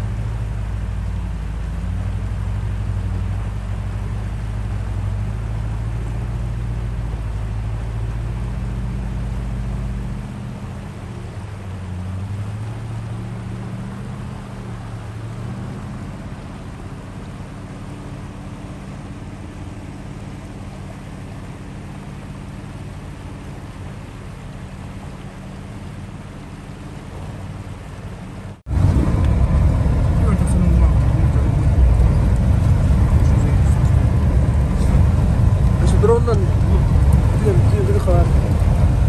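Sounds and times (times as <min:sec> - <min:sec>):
vehicle engine running: 0:00.0 - 0:39.0.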